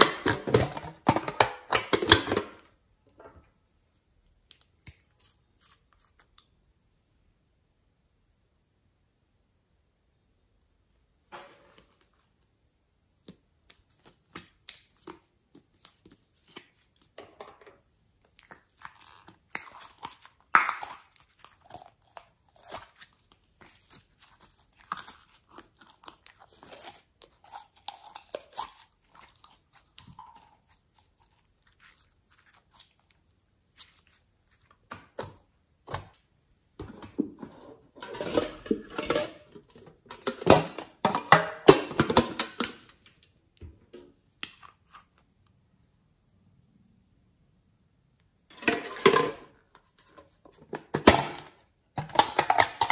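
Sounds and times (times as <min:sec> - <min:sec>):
plastic containers clicking and rustling: 0:00.0 - 0:03.3, 0:36.8 - 0:43.2, 0:50.1 - 0:52.9.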